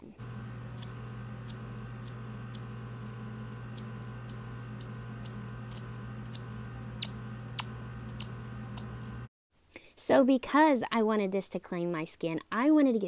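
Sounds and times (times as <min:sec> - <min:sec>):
vacuum pump humming: 0:00.0 - 0:09.3.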